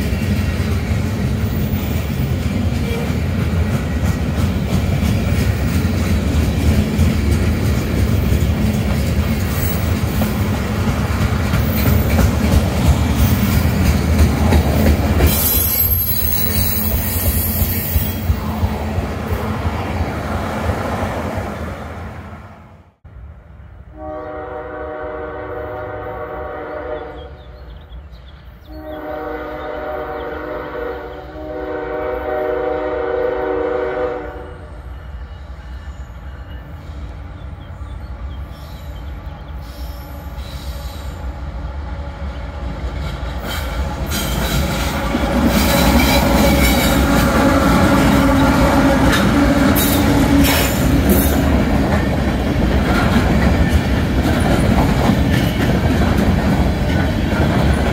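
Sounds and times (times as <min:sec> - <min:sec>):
wheels clicking over rail joints: 0:00.0 - 0:18.8, 0:42.9 - 0:57.9
train rumble: 0:00.0 - 0:57.9
locomotive horn blasts: 0:23.9 - 0:27.4, 0:28.7 - 0:34.7.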